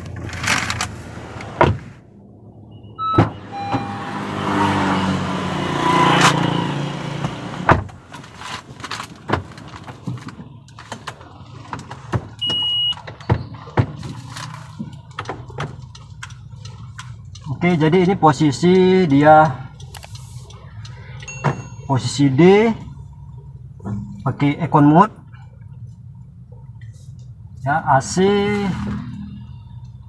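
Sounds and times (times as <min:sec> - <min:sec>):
car engine: 0:00.0 - 0:30.0
short electronic beep: 0:02.5 - 0:04.2.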